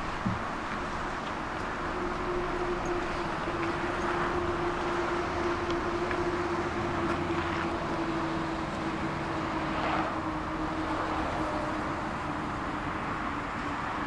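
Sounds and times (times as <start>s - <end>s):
tram rumbling and rolling: 0.0s - 14.0s.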